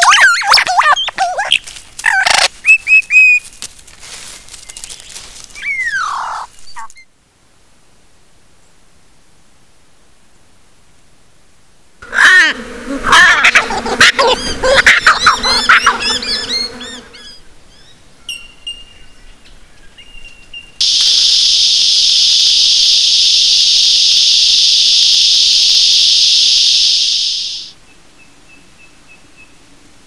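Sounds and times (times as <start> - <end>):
kookaburras cackling: 0.0 - 2.6, 5.6 - 7.0, 12.0 - 17.4
ravens calling: 5.2 - 7.0, 12.0 - 17.4
cicadas buzzing: 12.0 - 17.5, 20.8 - 27.8
faint high chirps: 20.1 - 27.8.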